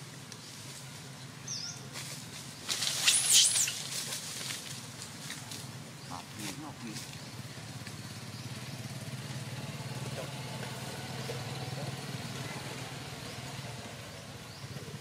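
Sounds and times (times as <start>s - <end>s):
motor engine running: 4.4s - 15.0s.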